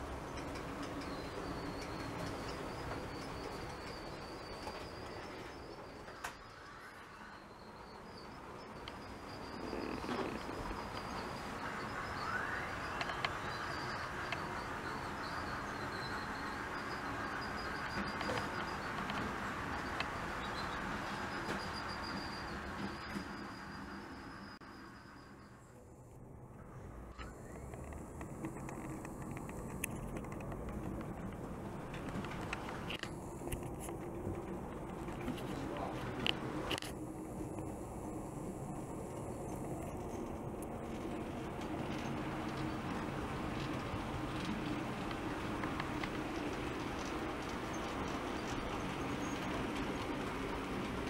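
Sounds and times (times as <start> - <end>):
model trains whirring rumble: 0.0 - 51.0
rising whine: 3.6 - 33.7.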